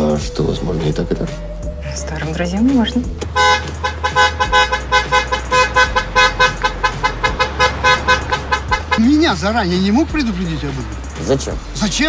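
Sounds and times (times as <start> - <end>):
car horn beeping: 3.0 - 9.6.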